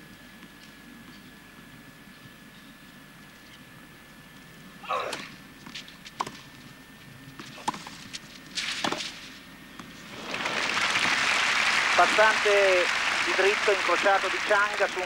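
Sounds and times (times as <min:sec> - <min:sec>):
crowd applause: 0:10.1 - 0:15.0.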